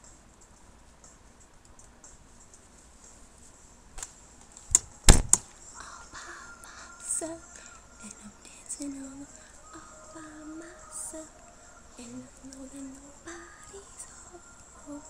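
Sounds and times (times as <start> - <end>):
knocks and thuds: 4.7 - 5.4.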